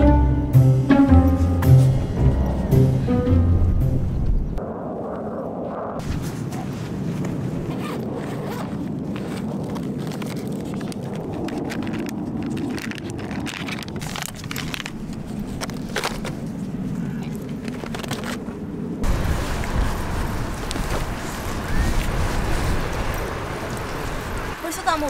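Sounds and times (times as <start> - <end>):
steady low rumble: 0.0 - 8.2, 8.8 - 25.0
pouch crinkling in hands: 7.7 - 16.6.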